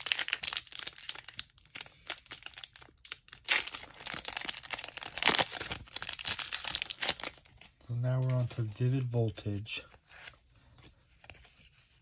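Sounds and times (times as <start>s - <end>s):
foil wrapper tearing and crinkling: 0.0s - 7.5s.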